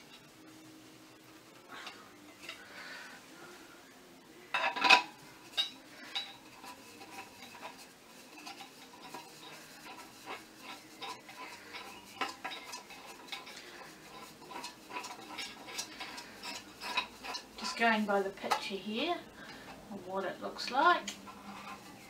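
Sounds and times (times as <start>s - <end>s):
metal pole threads clinking and scraping: 4.5s - 18.8s, 20.5s - 22.0s.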